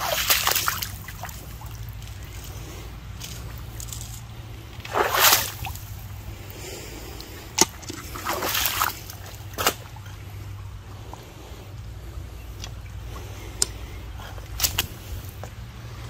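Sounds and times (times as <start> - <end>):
footsteps splashing in water: 0.0 - 6.4, 7.2 - 10.4, 14.4 - 15.6
steady low rumble: 0.0 - 16.0.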